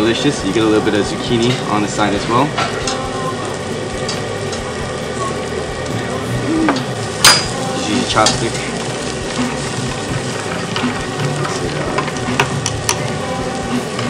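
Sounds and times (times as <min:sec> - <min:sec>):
meat sizzling on a grill: 0:00.0 - 0:14.0
metal tongs clinking: 0:06.8 - 0:08.6.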